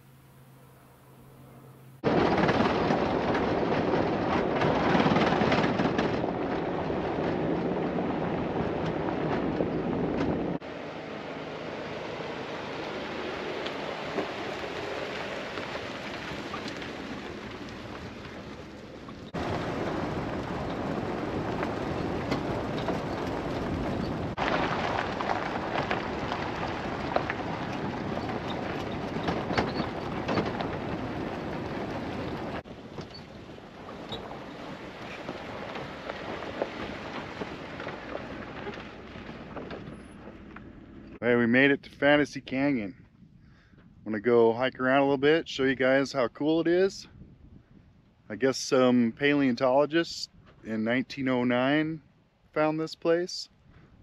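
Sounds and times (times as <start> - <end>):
wind rush: 2.0 - 39.9, 47.0 - 48.4
tyre noise on gravel: 12.4 - 40.9.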